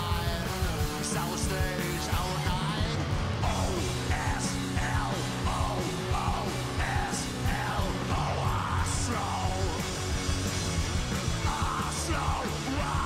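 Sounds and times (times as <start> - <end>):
singer's sliding vocal phrases: 0.0 - 9.9
live rock band playing: 0.0 - 13.0.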